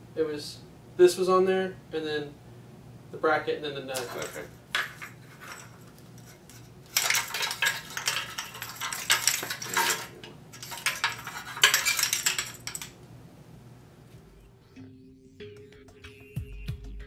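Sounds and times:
plastic parts clattering and clicking: 0:03.9 - 0:13.0.

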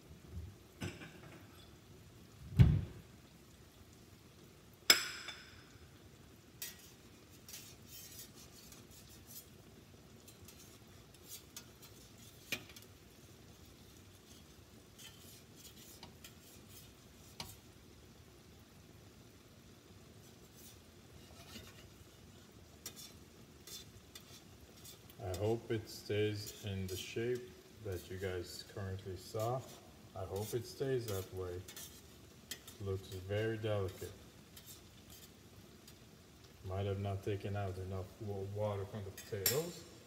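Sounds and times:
dull thump: 0:02.5 - 0:03.0
spatula tapping a frying pan: 0:04.9 - 0:05.8, 0:32.5 - 0:32.8.

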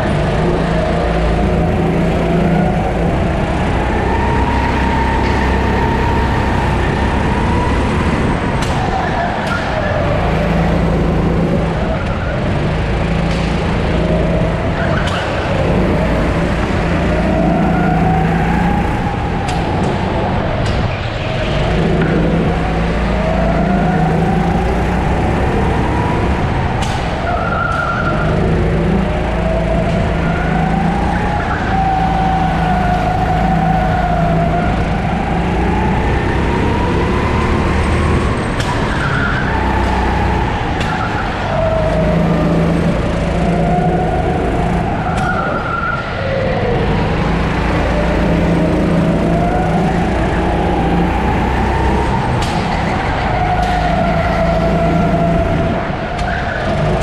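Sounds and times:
kart engine revving: 0:00.0 - 0:57.0.

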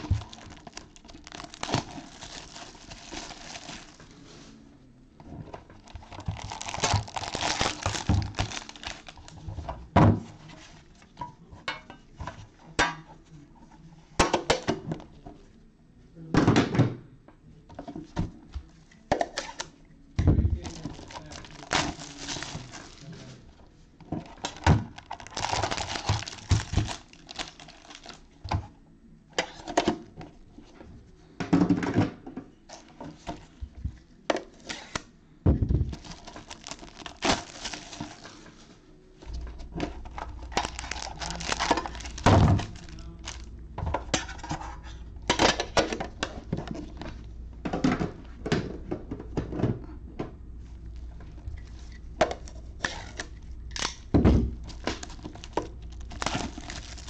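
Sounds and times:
plastic wrap crinkling and tearing: 0:00.0 - 0:04.4, 0:05.8 - 0:09.5, 0:20.6 - 0:23.4, 0:24.3 - 0:28.3, 0:35.9 - 0:38.6, 0:40.0 - 0:43.5, 0:51.6 - 0:57.0.

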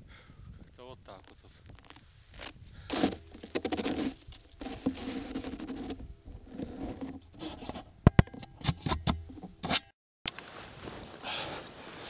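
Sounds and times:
rustling near microphone: 0:01.2 - 0:07.9, 0:08.5 - 0:12.0
footsteps crunching in snow: 0:01.8 - 0:06.9, 0:10.4 - 0:12.0
sharp clicks and knocks: 0:07.0 - 0:09.9.

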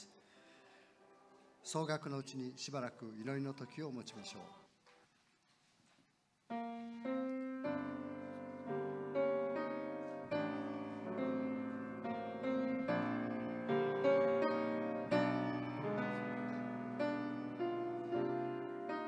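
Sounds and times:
piano playing slow chords: 0:06.5 - 0:19.0.

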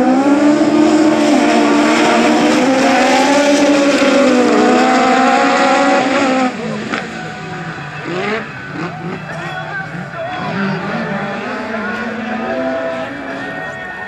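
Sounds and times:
racing car engines: 0:00.0 - 0:14.0.

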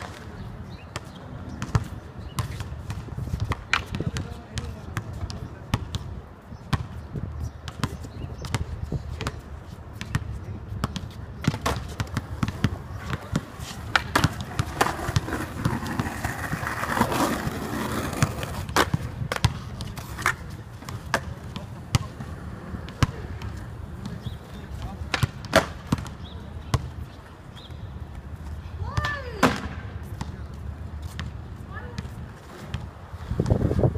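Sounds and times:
skateboard clacks: 0:11.4 - 0:24.3
skateboard rolling: 0:11.4 - 0:26.0, 0:32.2 - 0:33.9.

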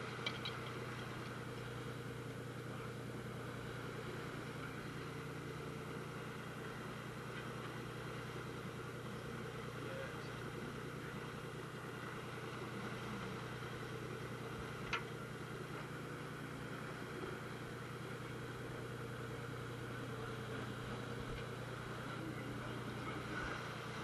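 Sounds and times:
boat engine humming: 0:00.0 - 0:24.0
wind and water hiss: 0:00.0 - 0:24.0.

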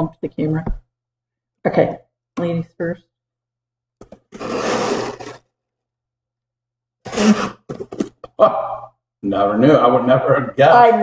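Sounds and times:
cardboard box scraping: 0:04.3 - 0:05.4.

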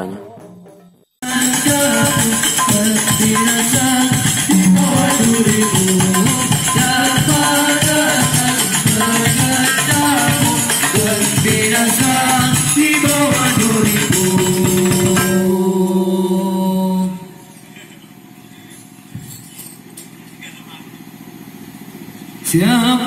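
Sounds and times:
jingling tambourine-like percussion: 0:00.3 - 0:16.2, 0:18.7 - 0:20.4
devotional music over a sound system: 0:01.2 - 0:18.0.

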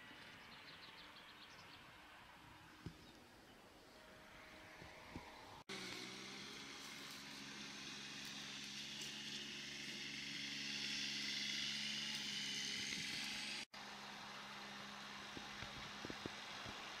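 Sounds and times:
mower engine hum: 0:03.8 - 0:17.0
mower whirring hiss: 0:04.0 - 0:17.0.

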